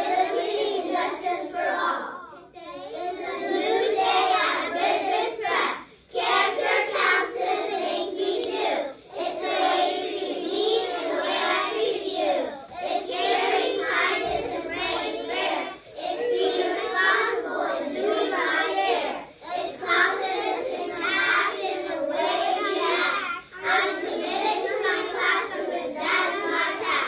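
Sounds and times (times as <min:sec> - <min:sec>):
children singing in unison: 0:00.0 - 0:27.0.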